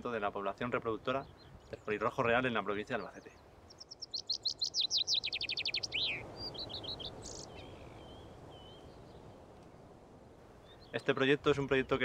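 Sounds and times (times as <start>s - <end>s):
soft woodland background: 0.0s - 12.0s
songbird singing: 0.0s - 12.0s
short bird chirps: 3.7s - 9.0s.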